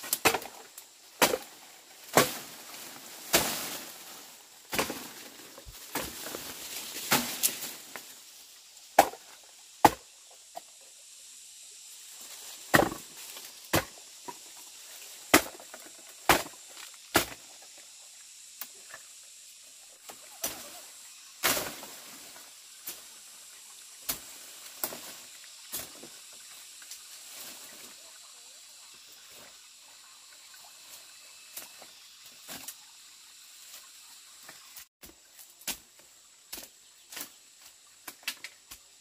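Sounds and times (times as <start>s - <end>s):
blade chopping plant stems: 0.0s - 2.6s, 3.3s - 3.9s, 4.7s - 5.3s, 7.1s - 7.7s, 9.0s - 9.2s, 12.7s - 14.0s, 15.3s - 17.4s.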